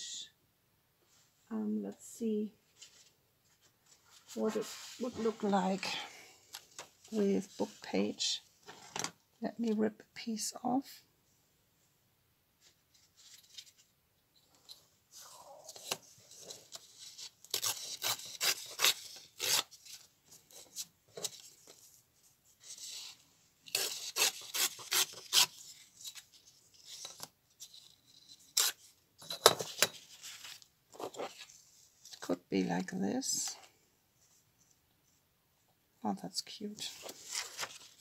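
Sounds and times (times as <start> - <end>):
paper tearing along a ruler: 16.8 - 20.0, 23.7 - 25.7, 28.5 - 28.9.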